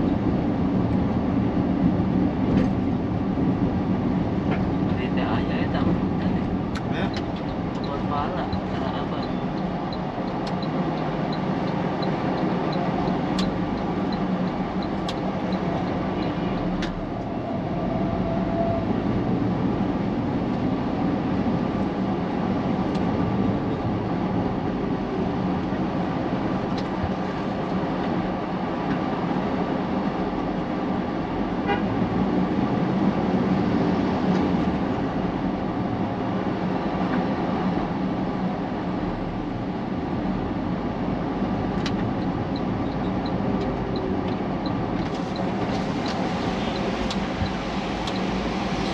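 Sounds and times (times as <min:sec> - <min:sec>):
road traffic noise: 0:00.0 - 0:48.9
vehicle horn tooting: 0:31.6 - 0:31.9.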